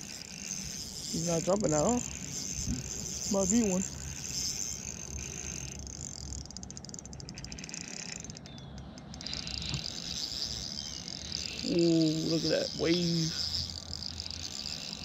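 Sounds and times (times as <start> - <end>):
faint rapid ticking: 0.0 - 15.0
fishing reel whirring: 0.0 - 15.0.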